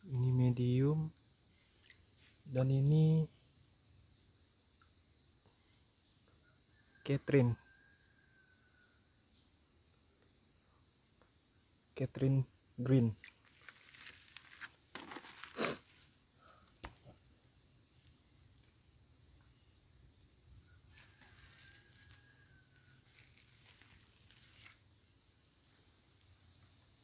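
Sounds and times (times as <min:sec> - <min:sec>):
handling rustling: 0:13.2 - 0:16.1.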